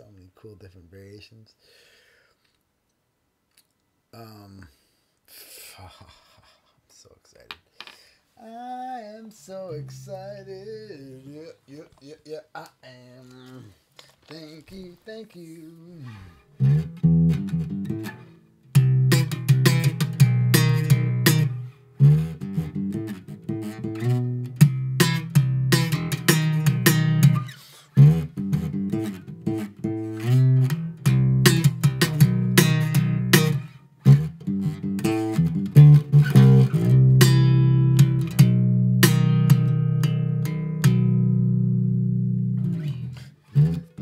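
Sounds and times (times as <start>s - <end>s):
plucked guitar music: 9.5s - 11.2s, 15.8s - 44.0s
bass line: 16.6s - 18.1s, 18.7s - 44.0s.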